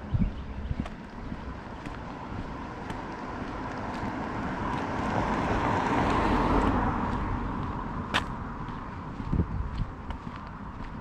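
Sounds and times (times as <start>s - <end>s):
car passing on wet road: 1.5s - 8.8s.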